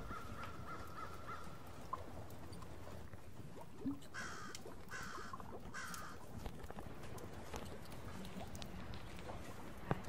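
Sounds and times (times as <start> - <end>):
bird cawing: 0.0 - 1.6, 4.2 - 6.2
low background noise with crackles: 0.0 - 10.0.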